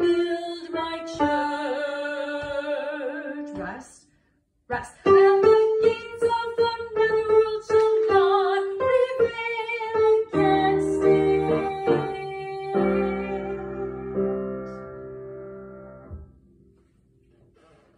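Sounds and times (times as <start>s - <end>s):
woman singing: 0.0s - 3.9s, 4.7s - 14.8s.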